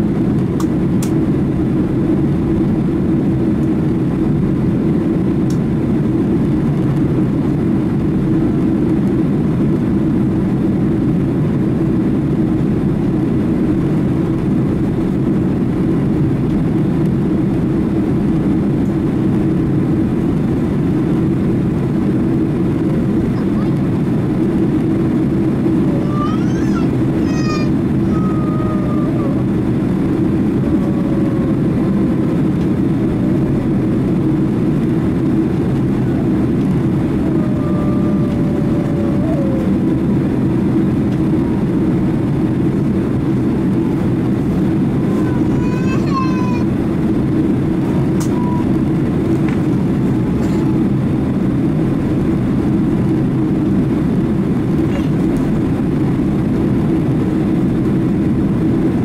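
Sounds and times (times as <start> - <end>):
jet engines rumbling: 0.0 - 59.0.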